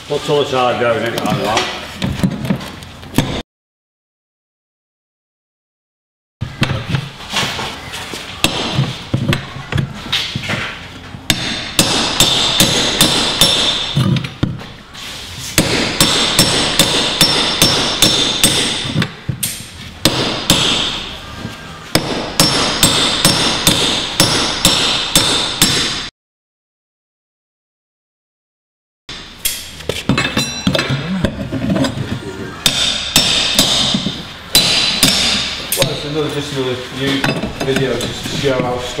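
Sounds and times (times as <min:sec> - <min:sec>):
hammer striking metal pry bar: 0:11.3 - 0:14.1, 0:15.6 - 0:21.1, 0:22.0 - 0:26.1, 0:29.1 - 0:31.0, 0:32.6 - 0:36.1.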